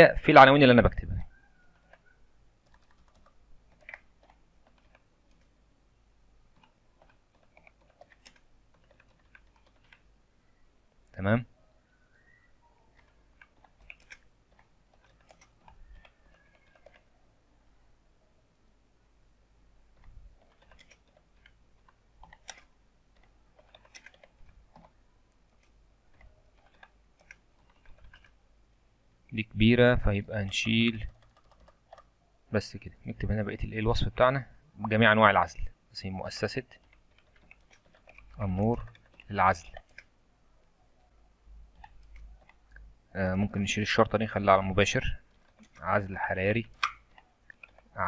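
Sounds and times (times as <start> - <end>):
faint keyboard typing: 0.8 - 5.6, 6.4 - 10.2, 12.1 - 17.2, 19.9 - 28.4, 29.3 - 32.2, 34.9 - 48.0.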